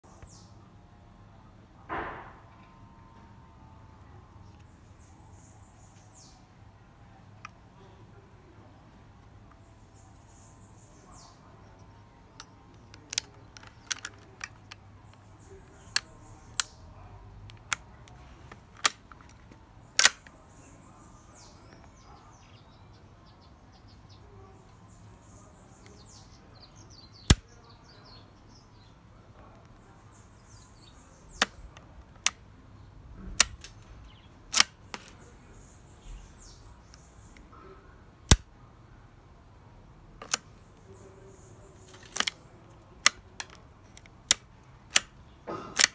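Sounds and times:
birds chirping: 0.0 - 45.9
metallic clicks of rifle bolt: 12.4 - 16.8, 17.5 - 20.4, 31.4 - 32.4, 33.2 - 33.9, 34.5 - 35.2, 40.2 - 40.5, 41.8 - 45.9.

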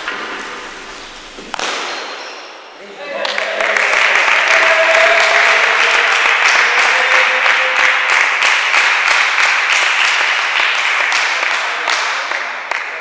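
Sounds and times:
spectators applauding: 3.2 - 13.0.

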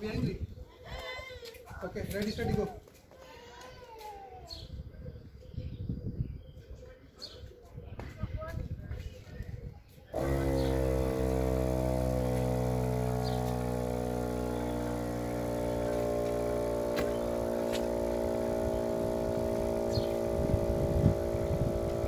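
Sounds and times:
electric air compressor running: 10.1 - 22.0.

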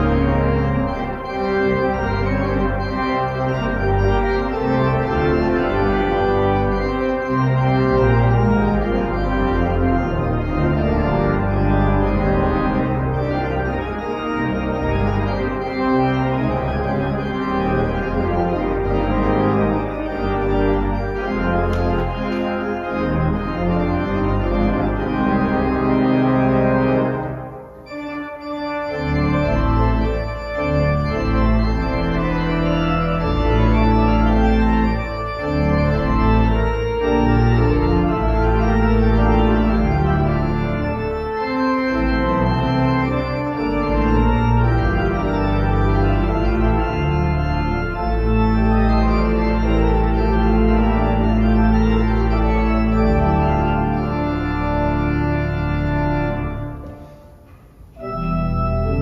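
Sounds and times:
church organ playing: 0.0 - 59.0.

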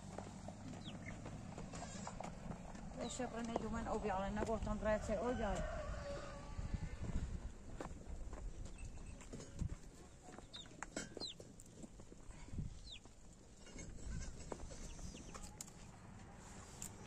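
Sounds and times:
fowl chirping: 0.8 - 1.2, 10.4 - 11.4, 12.8 - 13.0.

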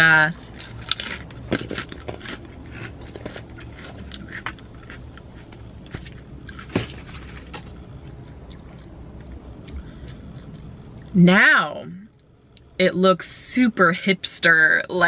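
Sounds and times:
chips crunching: 0.0 - 9.8
low steady hum: 0.0 - 15.0.

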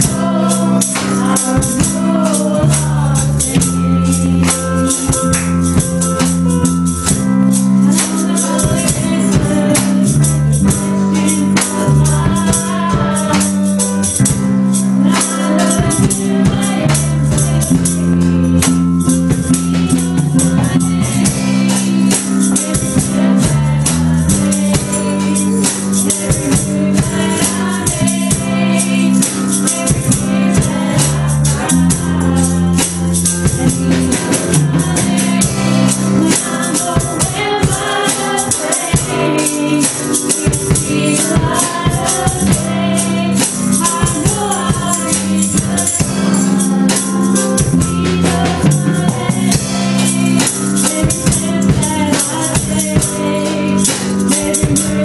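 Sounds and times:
drum kit with cymbals: 0.0 - 55.0
guitar: 0.0 - 55.0
keyboard: 0.0 - 55.0
woman singing into a microphone: 0.0 - 55.0.

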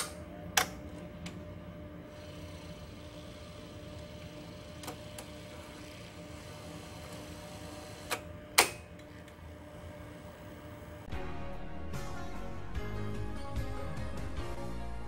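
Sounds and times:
motor hum: 0.7 - 12.5.

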